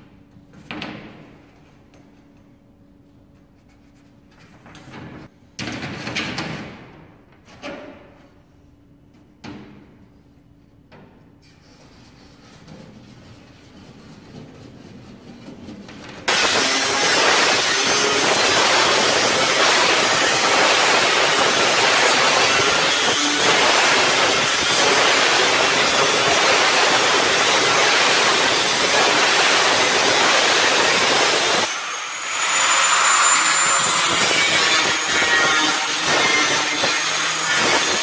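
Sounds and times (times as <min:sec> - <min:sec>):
angle grinder cutting metal: 0:16.3 - 0:38.0.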